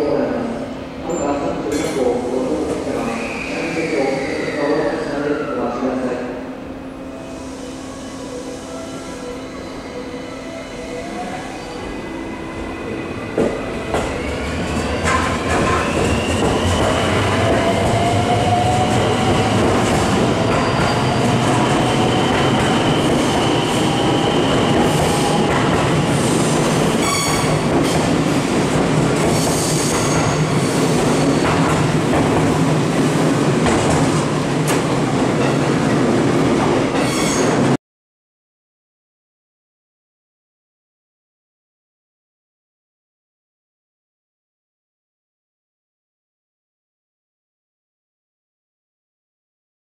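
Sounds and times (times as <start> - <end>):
high squeal: 2.9 - 6.0, 20.4 - 25.5, 27.0 - 27.6, 37.0 - 37.6
train cars rumbling past: 11.7 - 37.8.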